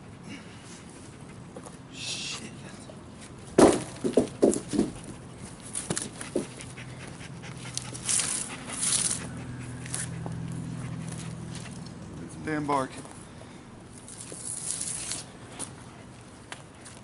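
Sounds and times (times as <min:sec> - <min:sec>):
log knocking as it settles: 0:03.6 - 0:05.0
log thudding on ground: 0:03.6 - 0:05.0
dog panting: 0:06.0 - 0:11.9.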